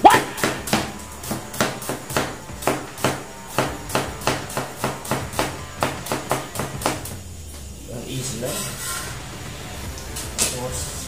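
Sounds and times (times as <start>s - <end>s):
knife chopping on wooden board: 0.0s - 7.2s.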